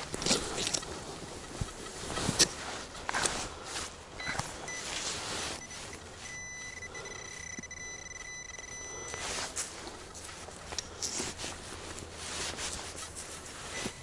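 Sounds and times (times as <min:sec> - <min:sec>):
metal detector beep and tone: 0:04.2 - 0:10.4, 0:13.6 - 0:14.0.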